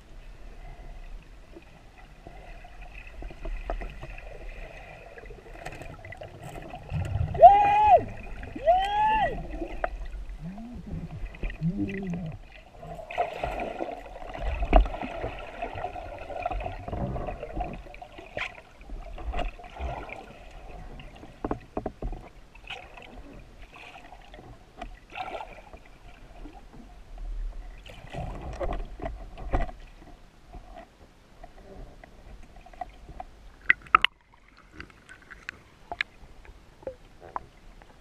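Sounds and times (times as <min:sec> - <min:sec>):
underwater bubbling: 0:00.0 - 0:21.8.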